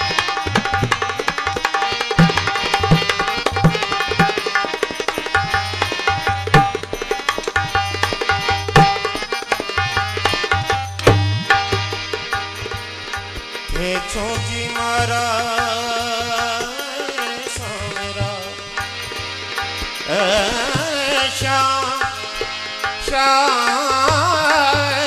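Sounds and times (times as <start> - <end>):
hand drum beat: 0.0 - 12.4
harmonium melody: 0.0 - 25.0.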